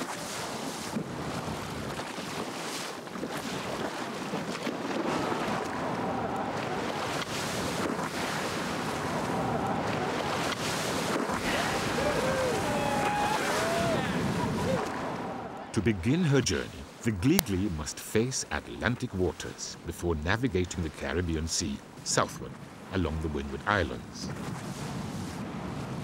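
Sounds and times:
wind buffeting microphone: 0.0s - 15.8s
sea water splashing against hull: 0.0s - 17.8s.

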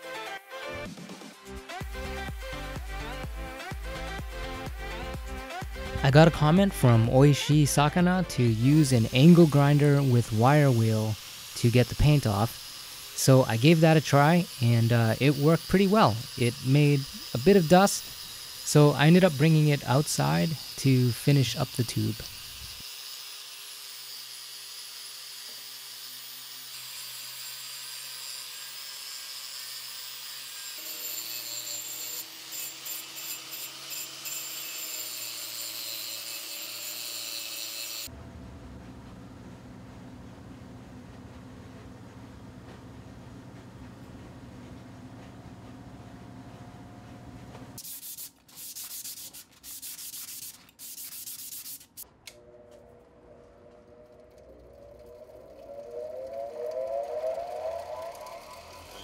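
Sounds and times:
angle grinder wire brush on metal: 7.9s - 38.1s, 47.8s - 52.1s, 54.8s - 59.0s
sandpaper rubbing on metal: 47.8s - 52.0s
steady whine: 52.1s - 59.0s.

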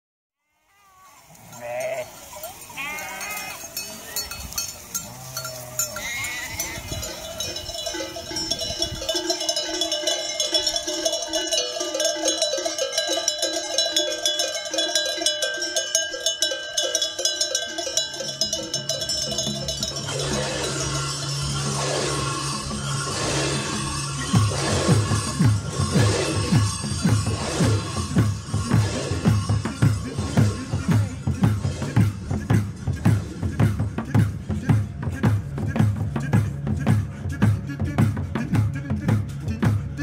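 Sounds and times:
sheep bleating: 0.4s - 7.6s, 19.6s - 26.7s
livestock bells clanking: 1.4s - 33.3s.

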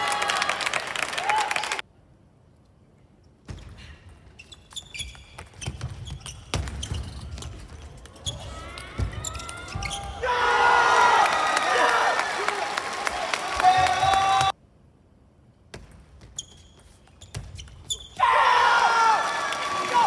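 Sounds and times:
crowd cheering and applause: 0.0s - 1.8s, 10.2s - 14.5s, 18.4s - 20.0s
shoes squeaking: 4.3s - 10.2s, 16.1s - 18.2s.

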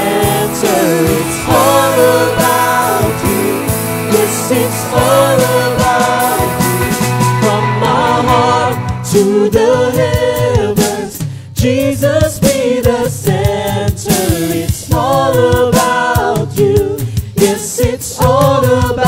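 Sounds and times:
drum hits: 0.0s - 11.2s
band accompaniment: 0.0s - 11.4s
group singing praise song: 0.0s - 19.0s.

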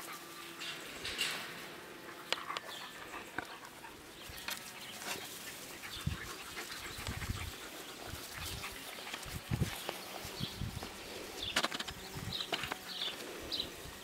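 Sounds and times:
puppies making faint sounds: 0.0s - 11.4s.

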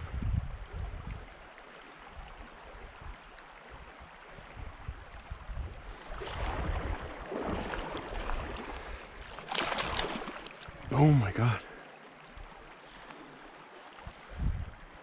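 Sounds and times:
stream water running: 0.0s - 15.0s
fish splashing at surface: 9.3s - 10.7s.

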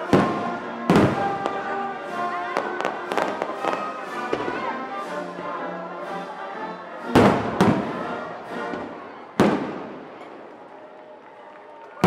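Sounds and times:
music: 0.0s - 12.0s
fireworks booming: 0.1s - 1.6s, 8.7s - 10.5s.

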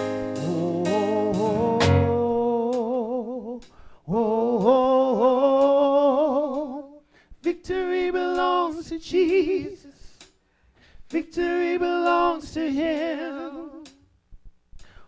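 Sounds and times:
drum and cymbal hit: 0.0s - 2.3s
person singing with vibrato: 0.0s - 10.2s, 11.1s - 14.0s
singer breathing: 3.6s - 4.1s, 7.0s - 7.4s, 9.8s - 11.2s, 14.7s - 15.0s.

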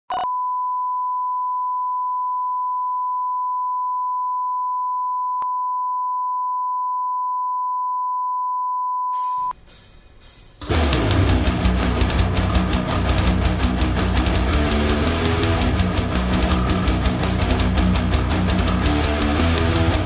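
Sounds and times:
steady test tone beep: 0.1s - 9.6s
faint hiss: 9.2s - 10.6s.

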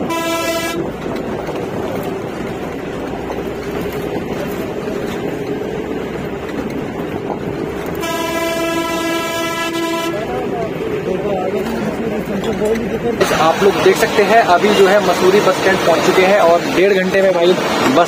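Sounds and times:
bus horn: 0.0s - 1.2s, 7.9s - 10.5s
bus engine and road noise: 0.0s - 18.0s.

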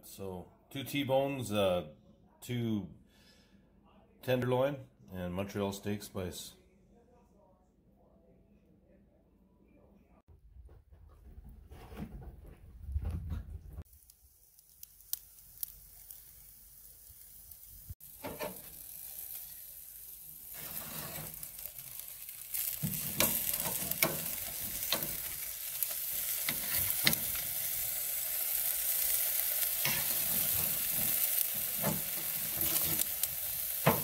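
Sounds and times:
steaks sizzling on a grill: 13.9s - 34.0s
spatula and tongs scraping grate: 18.2s - 18.8s, 20.5s - 27.7s, 29.8s - 34.0s.

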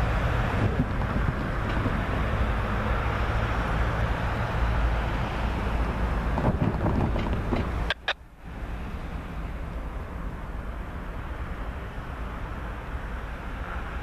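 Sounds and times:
wind rushing over microphone: 0.0s - 2.7s, 4.9s - 8.0s.

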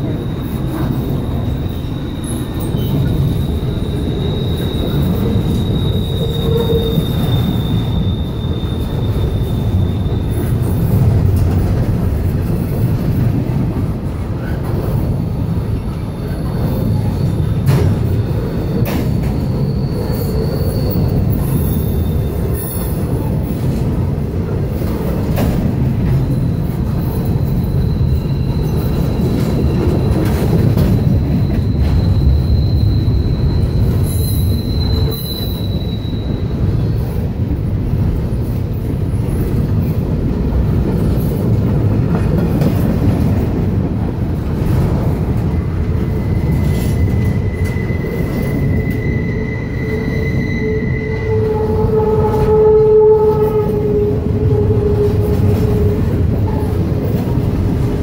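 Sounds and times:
high wheel squeal: 0.0s - 11.0s, 15.9s - 23.3s, 27.0s - 37.2s, 45.4s - 56.9s
train wheels rumbling on rail: 0.0s - 58.0s.

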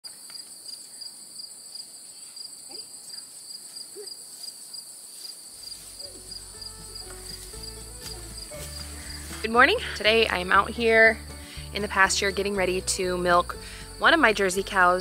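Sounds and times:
pulsing insect chorus: 0.2s - 9.4s.

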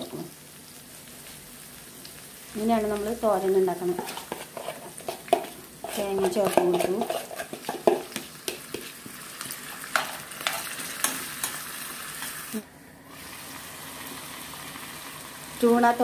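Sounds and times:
food sizzling in frying pan: 0.0s - 16.0s
spoon clicking and scraping pan: 3.9s - 9.1s, 9.9s - 11.6s.

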